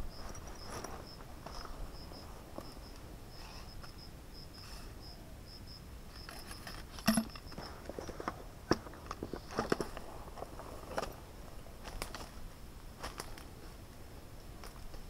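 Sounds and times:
insect chirping: 0:00.0 - 0:08.3.

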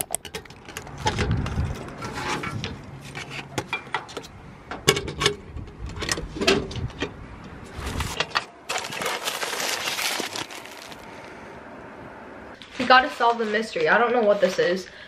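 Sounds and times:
loud rustling: 0:07.8 - 0:11.1.

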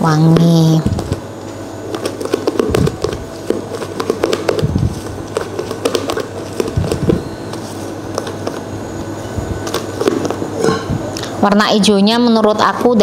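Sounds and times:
utensil scraping mixing bowl: 0:01.8 - 0:08.6.

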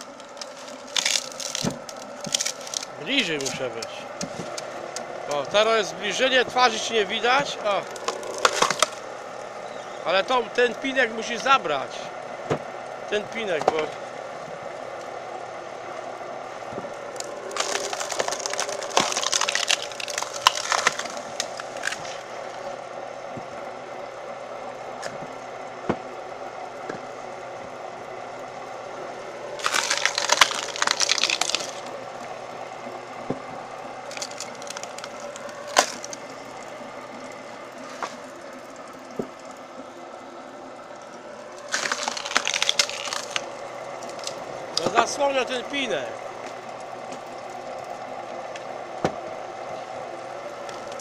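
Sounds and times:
wood cracking and splintering: 0:00.0 - 0:11.6, 0:13.4 - 0:14.0, 0:16.6 - 0:22.8, 0:29.5 - 0:32.4, 0:33.0 - 0:39.6, 0:40.9 - 0:49.2, 0:50.4 - 0:51.0
log splitter engine hum: 0:00.0 - 0:51.0.

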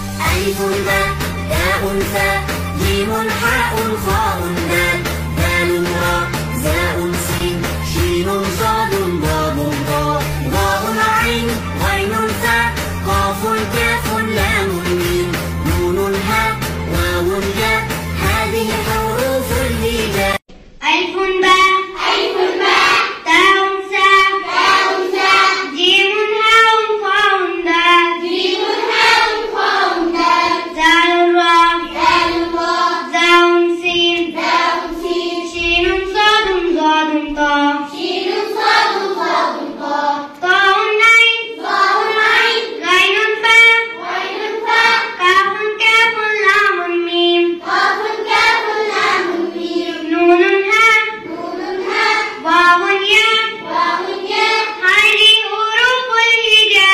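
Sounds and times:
child singing a chant: 0:19.6 - 0:56.9.

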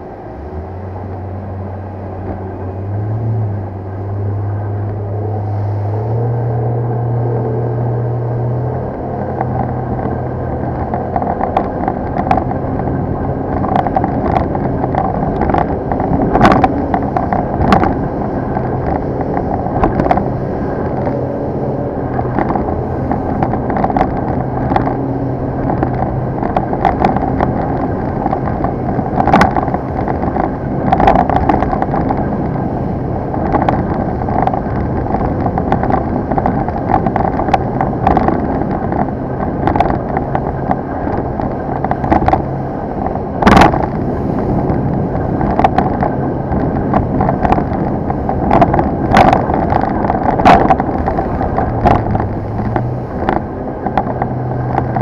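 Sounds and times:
hull slapping on waves: 0:00.0 - 0:55.0
motorboat engine drone: 0:00.0 - 0:55.0
rushing wind and water: 0:00.0 - 0:55.0.

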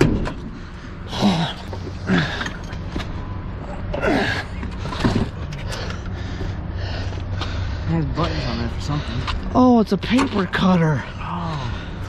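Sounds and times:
steady low hum: 0:00.0 - 0:12.0
men grunting: 0:01.1 - 0:02.7, 0:03.8 - 0:04.6, 0:10.8 - 0:12.0.

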